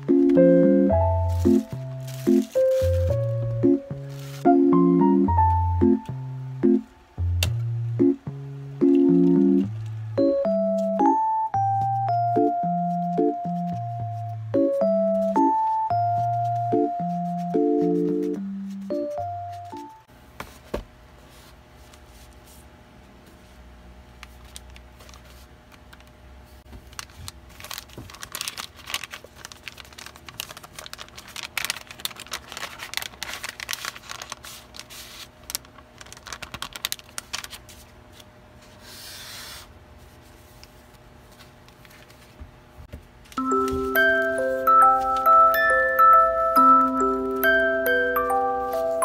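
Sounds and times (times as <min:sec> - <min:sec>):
packaging rustling and crinkling: 0:01.1 - 0:04.5, 0:24.2 - 0:26.0, 0:26.7 - 0:38.3.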